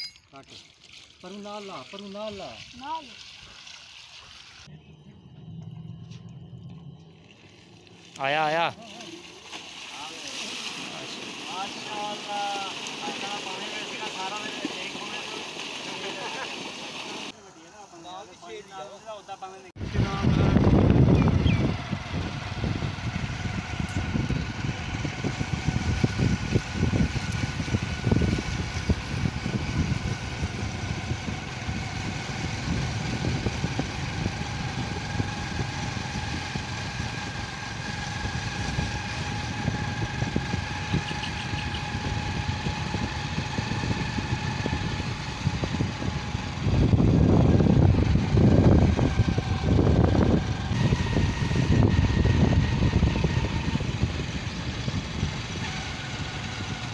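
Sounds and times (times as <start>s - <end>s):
vehicle engine running: 4.6s - 10.2s, 15.9s - 56.9s
wind rumble on microphone: 19.8s - 56.9s.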